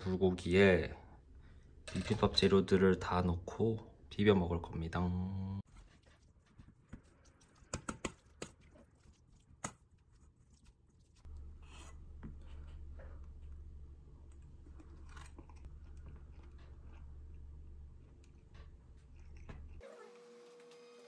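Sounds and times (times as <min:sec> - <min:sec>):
low steady hum: 0:11.3 - 0:19.8.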